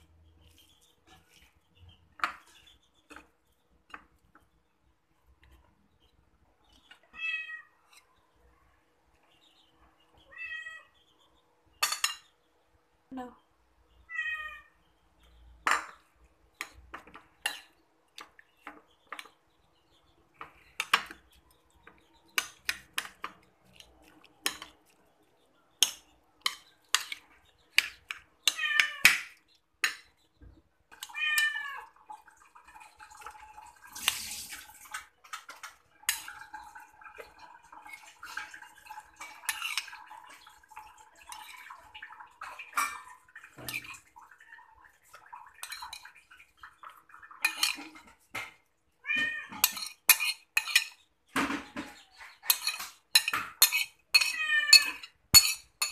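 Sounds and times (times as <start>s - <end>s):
cat meowing: 7.2s - 7.8s, 10.3s - 10.9s, 14.1s - 14.8s, 28.5s - 29.1s, 31.1s - 31.9s, 49.0s - 49.6s, 54.2s - 55.0s
metal spoon scraping a plate: 49.5s - 51.0s, 52.4s - 55.9s.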